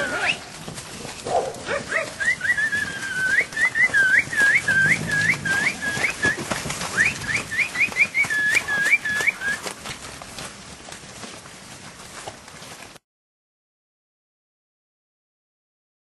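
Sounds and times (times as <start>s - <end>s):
person whistling: 2.2s - 9.6s.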